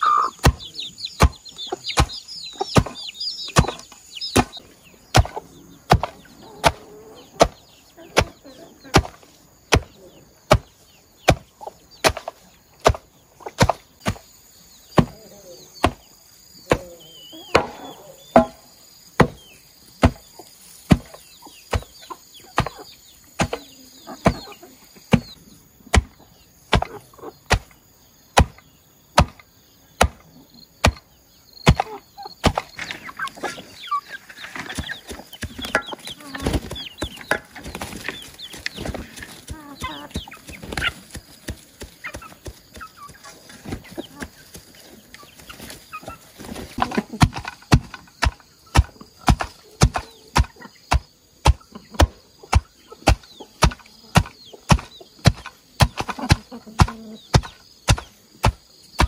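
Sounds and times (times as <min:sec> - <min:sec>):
chickens clucking and cheeping: 0:00.0 - 0:59.0
chopping knocks: 0:17.5 - 0:18.6, 0:29.2 - 0:29.4.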